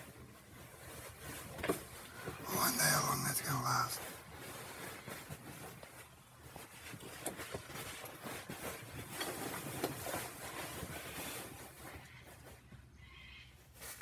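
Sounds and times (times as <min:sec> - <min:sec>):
dogs scuffling: 0:04.0 - 0:12.9.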